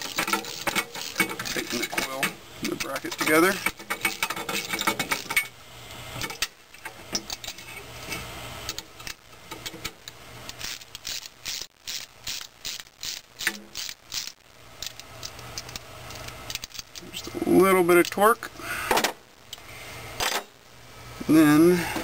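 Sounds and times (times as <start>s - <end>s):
ratchet wrench clicking: 0.0s - 5.4s, 10.5s - 17.0s.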